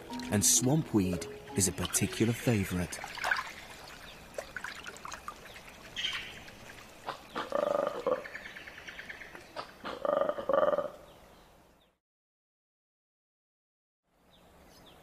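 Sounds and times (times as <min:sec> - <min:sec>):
monkey guttural pulsing call: 0:07.0 - 0:08.4, 0:09.5 - 0:11.0.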